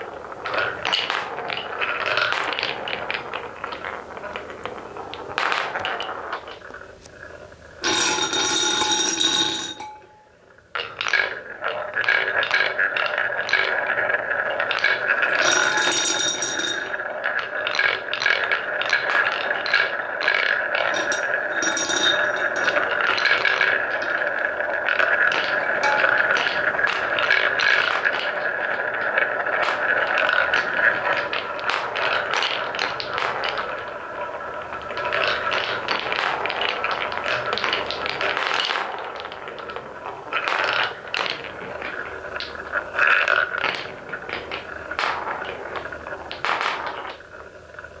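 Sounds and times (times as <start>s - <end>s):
balls clacking together: 0.0s - 48.0s
wooden balls rolling on wood: 0.0s - 48.0s
short ringing tones: 7.8s - 10.4s, 15.3s - 17.0s, 21.0s - 23.2s, 25.5s - 26.8s.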